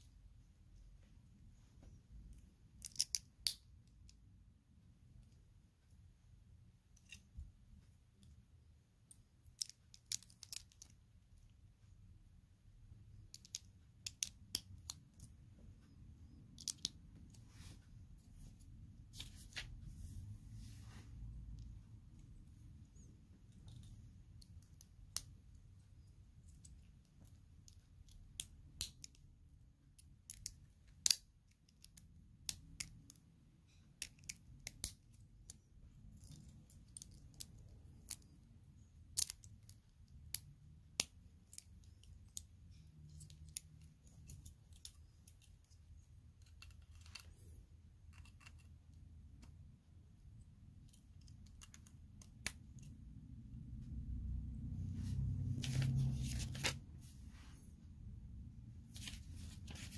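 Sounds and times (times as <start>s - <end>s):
low steady hum: 0.0s - 59.9s
plastic bricks clicking together: 2.8s - 3.6s.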